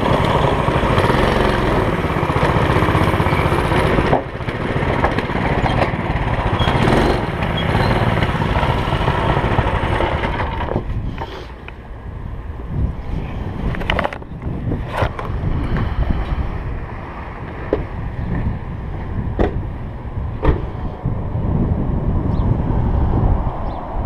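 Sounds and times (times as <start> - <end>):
go-kart engine rumbling: 0.0 - 23.8
wind buffeting microphone: 0.0 - 24.0
sharp knocks and rattles: 2.2 - 10.9.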